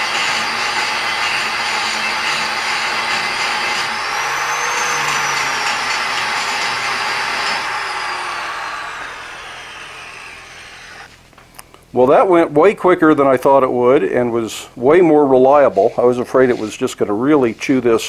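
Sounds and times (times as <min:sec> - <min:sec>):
angle grinder grinding steel: 0:00.0 - 0:11.2.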